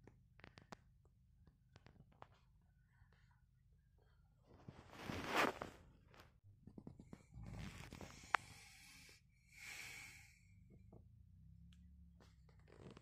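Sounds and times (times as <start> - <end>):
faint rustling and handling: 4.4 - 8.1
breathy hiss: 7.4 - 10.6.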